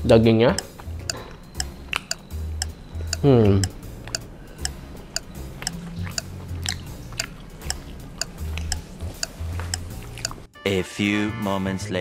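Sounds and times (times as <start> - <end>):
light background music: 0.0 - 12.0
person chewing: 1.1 - 10.5.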